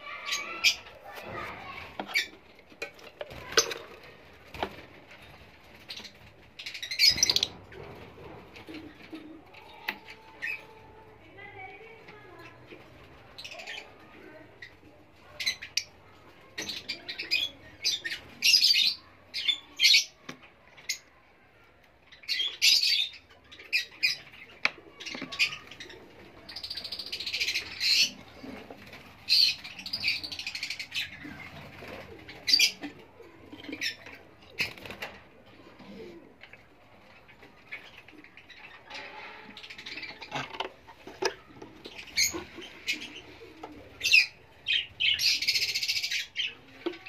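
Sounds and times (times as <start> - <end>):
parrots chirping and screeching: 0.0 - 2.5, 5.8 - 7.9, 22.2 - 28.6, 29.3 - 31.8, 32.4 - 32.9, 37.1 - 43.4, 44.0 - 46.6.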